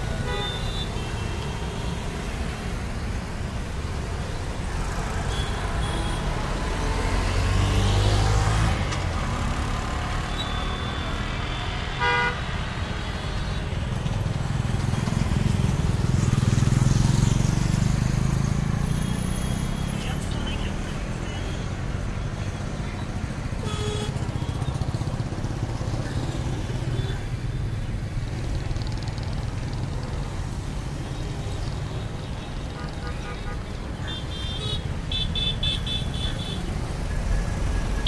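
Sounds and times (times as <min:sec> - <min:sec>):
road traffic rumble: 0:00.0 - 0:38.0.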